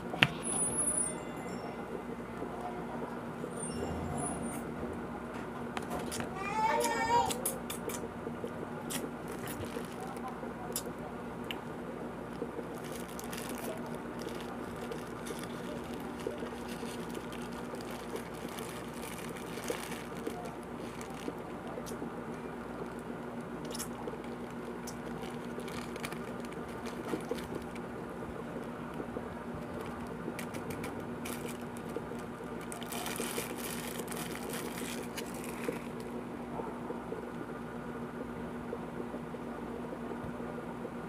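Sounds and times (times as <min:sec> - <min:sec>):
steady low hum: 0:00.0 - 0:41.0
plastic crinkling: 0:08.9 - 0:10.9, 0:11.5 - 0:36.2.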